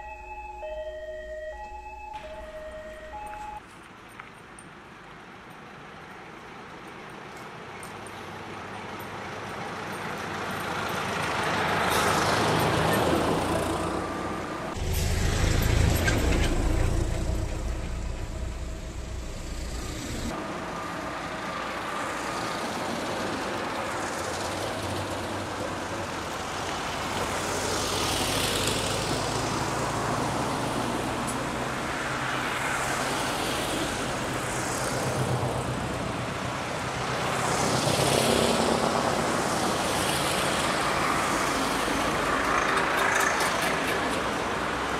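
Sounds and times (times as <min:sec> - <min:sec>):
cars passing with tyre noise: 0:00.0 - 0:44.9
bus engine passing: 0:08.3 - 0:44.9
loud low engine: 0:10.8 - 0:20.8.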